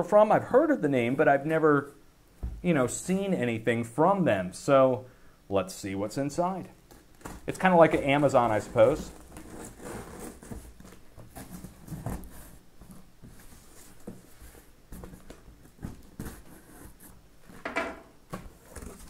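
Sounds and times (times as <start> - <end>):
cardboard box rustling and scraping: 8.1 - 17.2.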